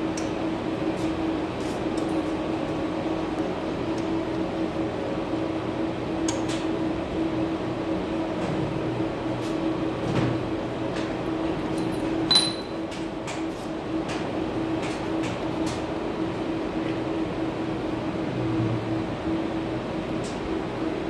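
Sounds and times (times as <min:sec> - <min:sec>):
steady machine hum: 0:00.0 - 0:21.0.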